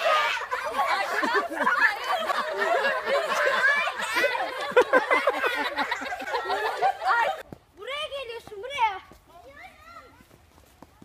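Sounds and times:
children laughing and shrieking: 0.0s - 7.4s.

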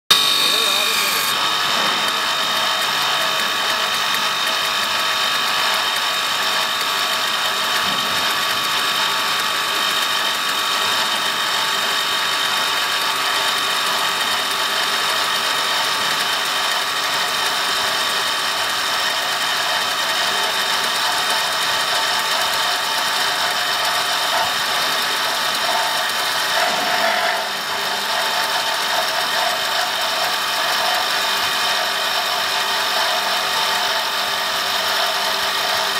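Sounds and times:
cutter shaving spinning wood: 0.0s - 35.9s
wood lathe whine: 0.1s - 35.9s.

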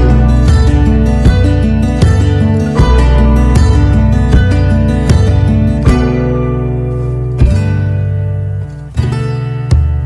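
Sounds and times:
plucked acoustic guitar: 0.0s - 10.0s.

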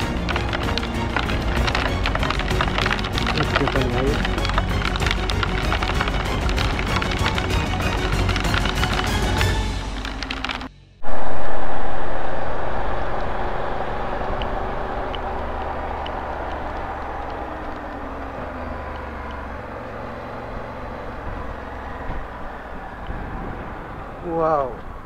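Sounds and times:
motorcycle engine hum: 0.0s - 25.0s
wind rushing over microphone: 11.0s - 25.0s.

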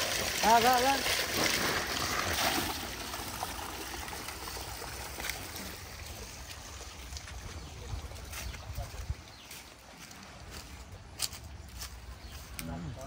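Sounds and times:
water gushing from outlet: 0.0s - 9.3s.

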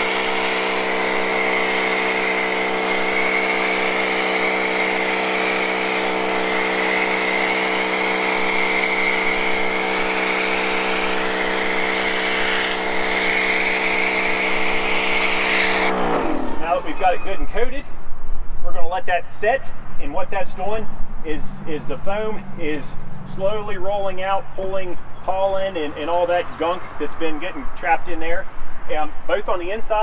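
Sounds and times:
spray gun hissing: 0.0s - 17.0s
pressure washer humming: 0.0s - 17.3s.

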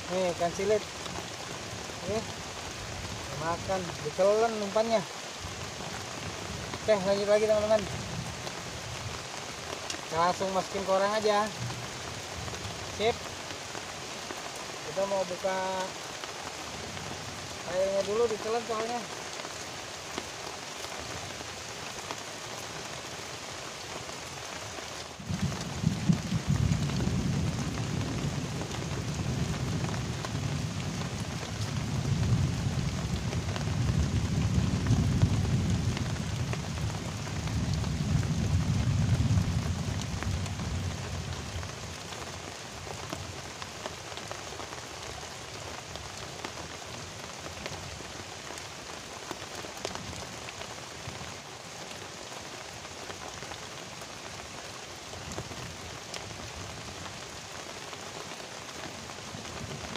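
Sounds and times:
heavy rain hissing: 0.0s - 59.9s
thunder rumbling: 25.2s - 41.8s.

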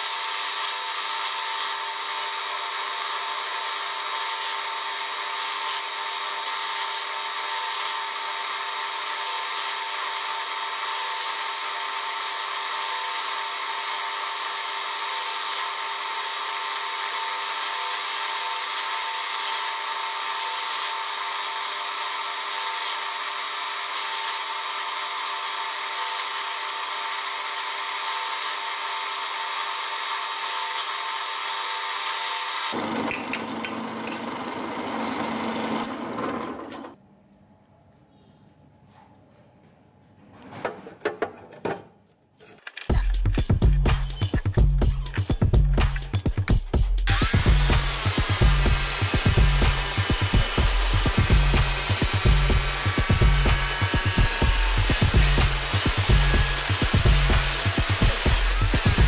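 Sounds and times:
drill press whine: 0.0s - 37.0s, 47.1s - 59.0s
drill bit cutting into steel: 47.1s - 59.0s.

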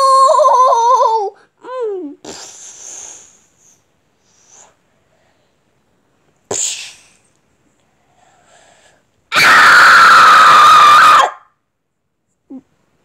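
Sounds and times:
sharp breathy burst: 2.3s - 5.6s, 8.0s - 9.1s
loud high-pitched scream: 9.3s - 11.5s.

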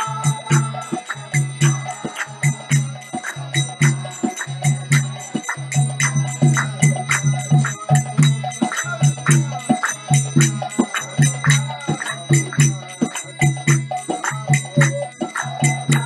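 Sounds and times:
man singing: 0.0s - 13.4s
hand cymbals ringing: 0.0s - 16.0s.

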